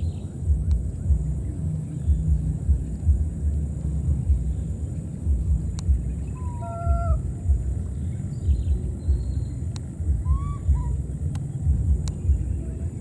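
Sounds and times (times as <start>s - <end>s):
low uneven rumble: 0.0s - 13.0s
high-pitched animal calls: 6.3s - 7.3s, 10.2s - 11.1s.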